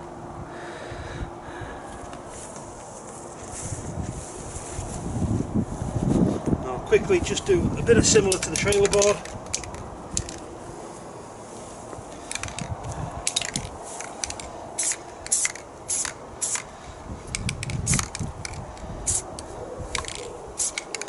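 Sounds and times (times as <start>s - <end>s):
spray paint can hissing: 13.3s - 21.0s.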